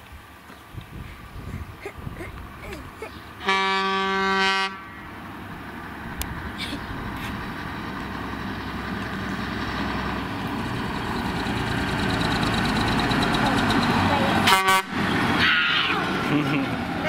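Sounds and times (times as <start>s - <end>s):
truck diesel engine: 1.0s - 17.0s
loud horn blast: 3.4s - 4.9s, 14.4s - 15.8s.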